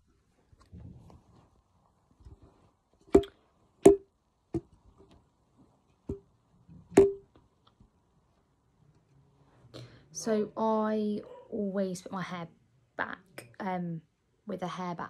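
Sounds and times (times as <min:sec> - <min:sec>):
sharp ringing knocks: 0:07.0 - 0:07.2.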